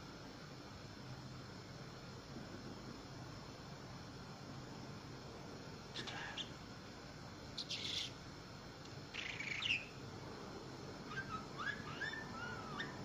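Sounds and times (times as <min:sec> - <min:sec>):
budgerigar chirping and warbling: 0:07.6 - 0:08.2, 0:09.1 - 0:10.0, 0:11.1 - 0:13.0.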